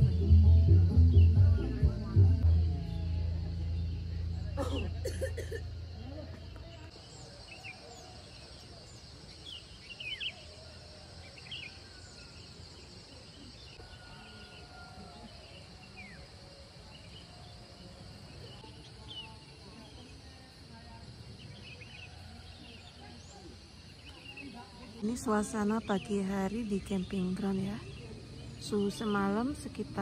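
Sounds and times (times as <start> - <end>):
low rumble: 0.0 - 5.0.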